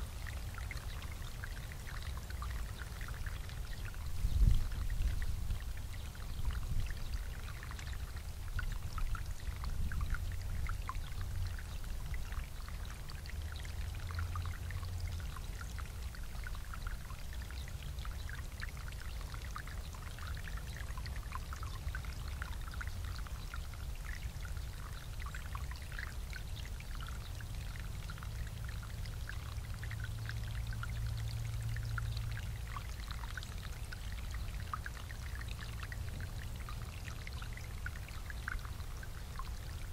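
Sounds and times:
water bubbling and splashing: 0:00.0 - 0:39.9.

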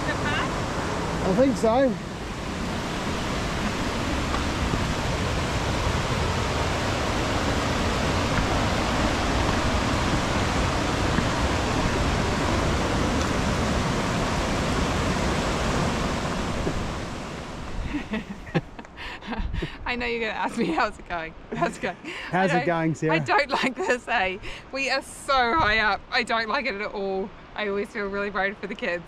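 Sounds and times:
river rushing over rapids: 0:00.0 - 0:17.9.

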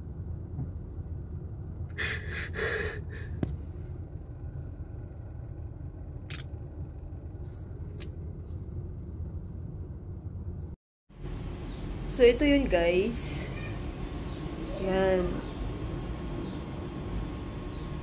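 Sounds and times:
low rumble inside car cabin: 0:00.0 - 0:13.2.

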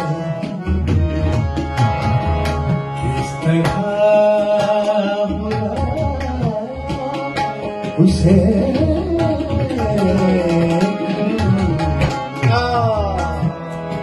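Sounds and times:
harmonium notes: 0:00.0 - 0:14.0
tabla rhythm: 0:00.0 - 0:14.0.

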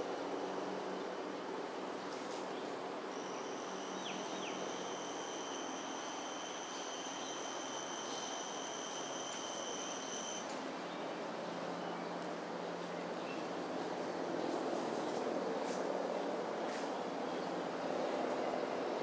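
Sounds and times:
insect high-pitched whine: 0:03.1 - 0:10.5.

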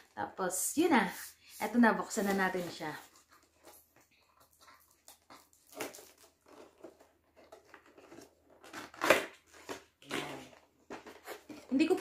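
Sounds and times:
cardboard box tearing: 0:05.5 - 0:12.0.

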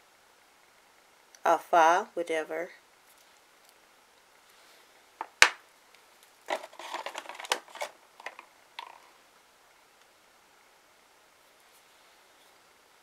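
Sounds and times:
bottles clicking and rattling: 0:06.5 - 0:09.0.

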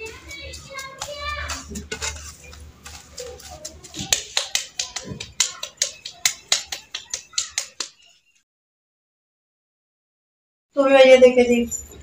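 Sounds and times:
wet hands patting curd: 0:00.0 - 0:08.1.

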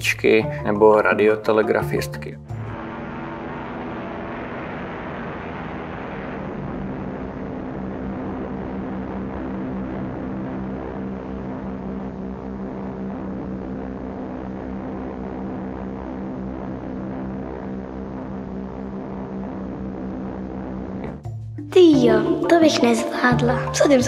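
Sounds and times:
propeller aircraft engines droning: 0:02.5 - 0:08.2.

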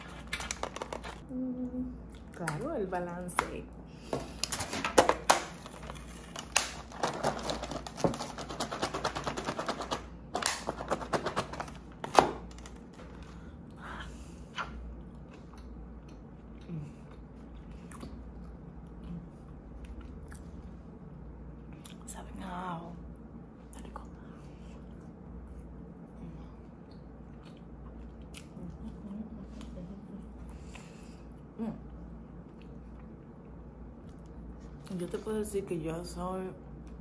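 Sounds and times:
crunchy eating sounds: 0:00.0 - 0:01.3, 0:14.4 - 0:22.1, 0:23.7 - 0:34.9.

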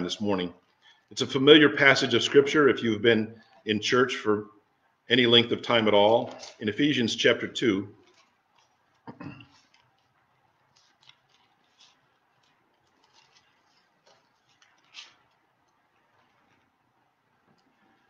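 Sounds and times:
book pages turning: 0:05.8 - 0:07.1, 0:07.9 - 0:18.0.

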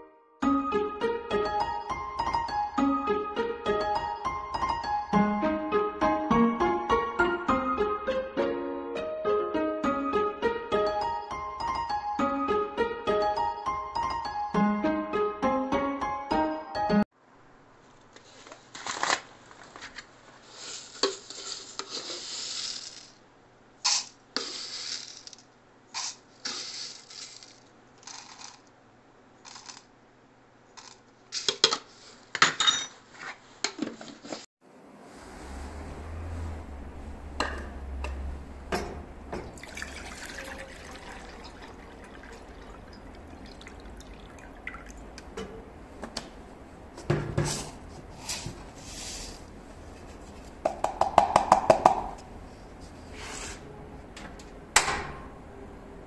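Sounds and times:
seeds rattling into plastic cup: 0:20.4 - 0:23.2, 0:23.9 - 0:25.4, 0:26.0 - 0:28.7, 0:29.4 - 0:29.9
water pouring into saucepan: 0:39.5 - 0:45.1.

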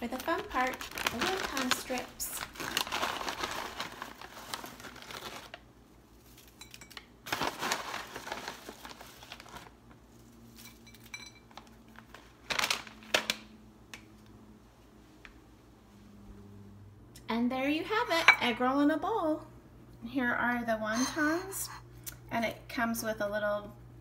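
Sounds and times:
plastic snack bag crinkling: 0:00.0 - 0:13.5.

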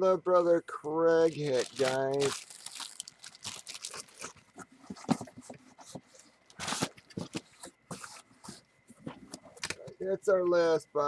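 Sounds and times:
plastic bag crinkling: 0:01.3 - 0:08.6.

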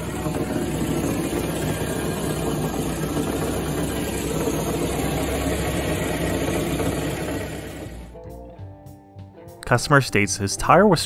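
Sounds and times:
car engine running: 0:00.0 - 0:08.2.

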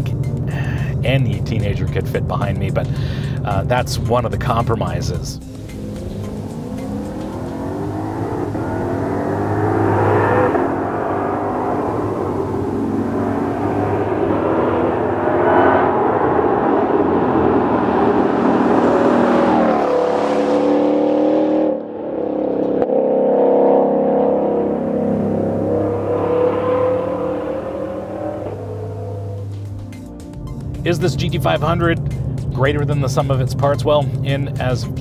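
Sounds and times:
car engine revving hard: 0:05.5 - 0:29.8.

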